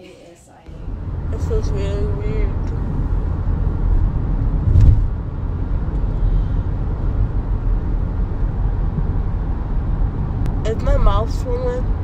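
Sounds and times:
car road noise rumble: 0.7s - 12.0s
short thump: 4.6s - 5.1s.

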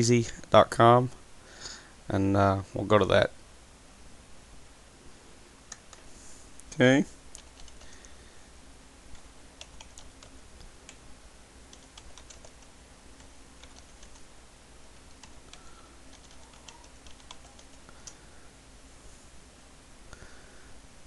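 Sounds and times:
typing on computer keyboard: 7.4s - 8.1s, 9.6s - 10.3s, 11.7s - 14.2s, 15.1s - 18.2s.

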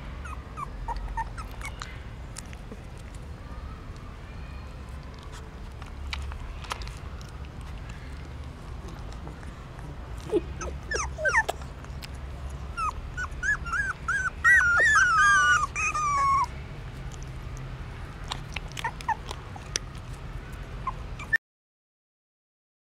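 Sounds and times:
puppies whimpering: 0.0s - 3.1s, 7.2s - 17.3s, 18.2s - 21.4s.

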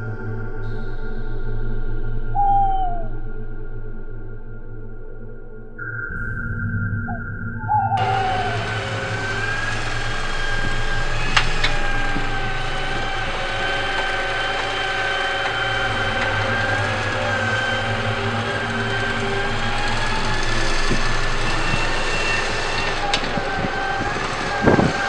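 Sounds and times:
toy excavator motor whine: 8.0s - 25.0s.

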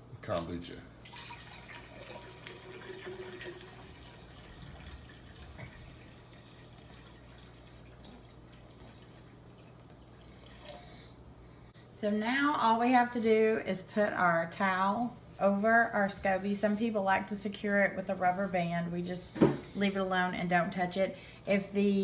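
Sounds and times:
water pouring into a glass jar: 1.0s - 11.0s.

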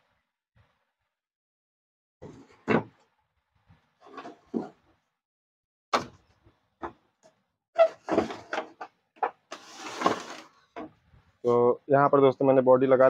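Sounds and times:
plastic scraping slide: 9.4s - 10.6s.

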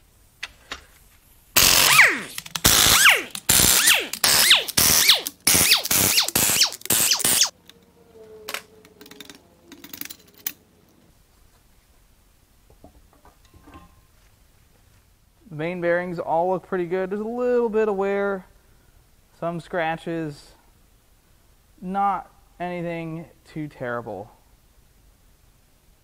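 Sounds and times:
pneumatic impact wrench hammering: 1.6s - 7.5s
metal clinks and knocks: 8.5s - 10.7s.

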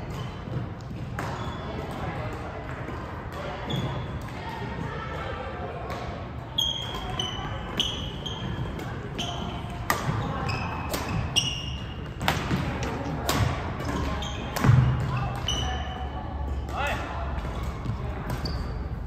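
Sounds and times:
shoes squeaking on floor: 1.3s - 1.8s, 6.5s - 12.2s, 13.9s - 16.2s, 17.8s - 19.0s.

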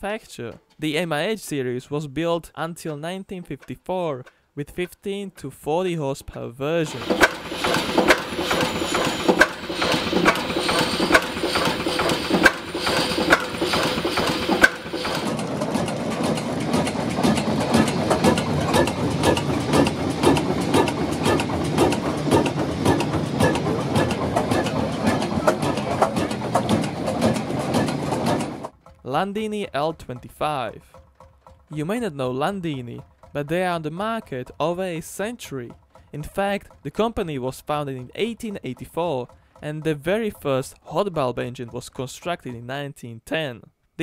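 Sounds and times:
diesel engine knocking: 6.9s - 41.8s.

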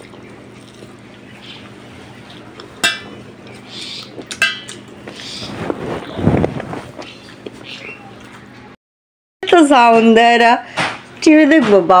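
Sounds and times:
fingers mixing rice on a plate: 0.0s - 8.4s.

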